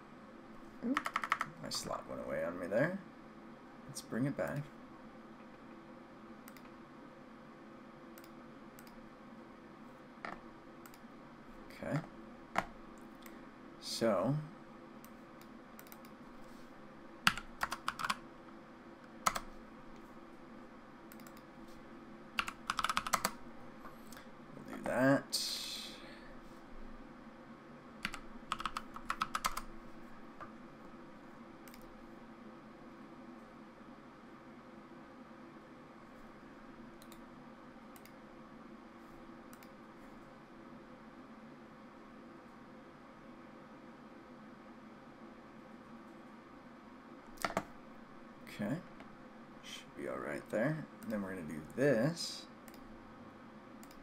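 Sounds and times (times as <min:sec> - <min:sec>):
faint steady hum: 0:00.0 - 0:54.0
keyboard typing: 0:00.8 - 0:01.6, 0:15.4 - 0:16.2, 0:17.2 - 0:18.2, 0:19.2 - 0:19.5, 0:21.1 - 0:21.5, 0:22.4 - 0:23.4, 0:28.0 - 0:29.7, 0:47.4 - 0:47.7
computer mouse clicking: 0:00.9 - 0:01.5, 0:06.4 - 0:06.8, 0:08.2 - 0:09.0, 0:10.3 - 0:11.1, 0:15.0 - 0:16.2, 0:17.2 - 0:18.2, 0:19.0 - 0:20.1, 0:21.1 - 0:21.5, 0:22.4 - 0:23.4, 0:28.0 - 0:29.7, 0:31.6 - 0:32.0, 0:37.0 - 0:37.3, 0:37.9 - 0:38.2, 0:39.5 - 0:39.8, 0:47.3 - 0:47.7, 0:52.6 - 0:52.9, 0:53.8 - 0:54.0.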